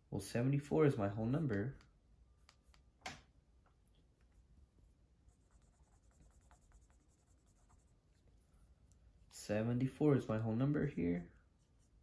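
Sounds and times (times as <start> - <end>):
marker writing on a whiteboard: 4.0 - 12.0.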